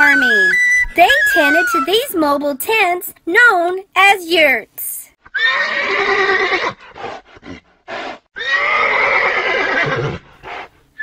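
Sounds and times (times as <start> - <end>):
horses neighing: 5.3 - 10.6.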